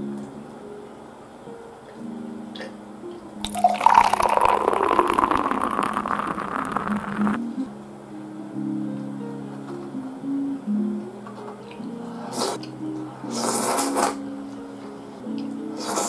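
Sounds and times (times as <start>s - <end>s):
beer fizzing pour into mug: 3.4s - 7.4s.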